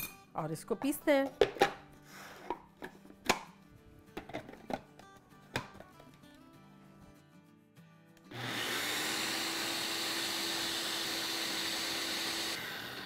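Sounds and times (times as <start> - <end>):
blender motor whirring: 8.3 - 13.0.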